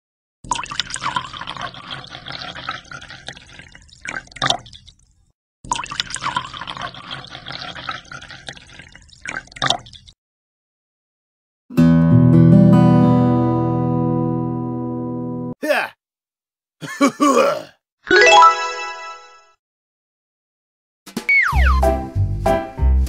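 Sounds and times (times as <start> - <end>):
water pouring into glass tank: 0.5 - 10.2.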